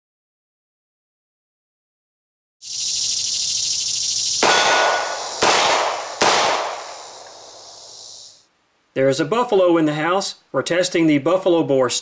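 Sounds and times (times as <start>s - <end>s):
high buzz of insects: 2.6s - 8.5s
revolver gunshots: 4.4s - 7.7s.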